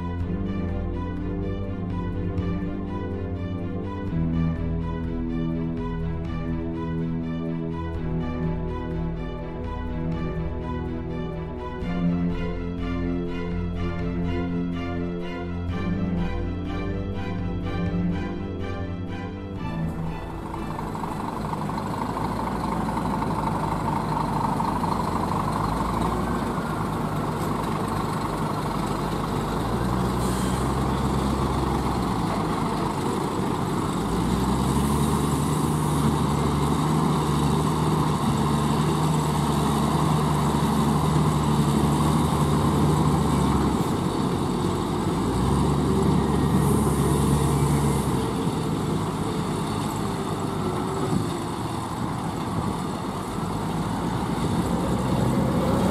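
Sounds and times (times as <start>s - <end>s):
heavy diesel engines idling: 0.0s - 55.9s.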